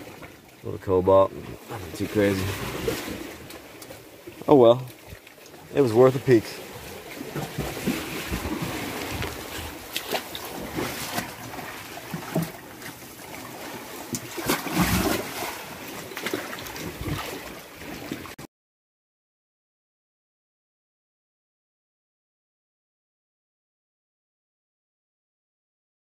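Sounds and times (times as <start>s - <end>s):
surf on rocky shore: 0.0s - 18.4s.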